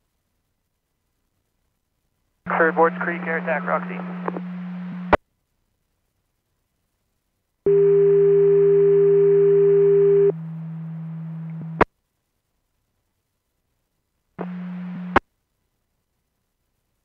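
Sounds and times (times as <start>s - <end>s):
low hum: 2.5s - 5.2s
radio static hiss: 2.5s - 5.2s, 14.4s - 15.2s
radio steady tone: 2.5s - 5.2s, 14.4s - 15.2s.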